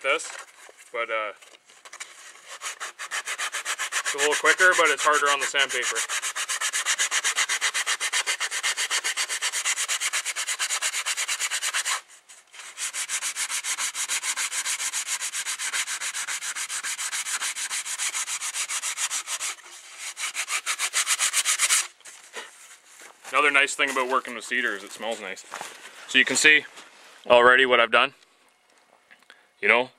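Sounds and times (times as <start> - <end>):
sandpaper rasping on wood: 2.1 - 25.4.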